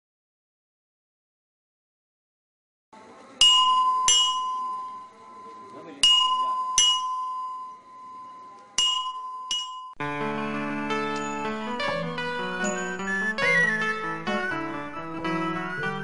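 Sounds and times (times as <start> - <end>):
bell-like chime tones: 3.4 - 10.0, 11.1 - 13.2.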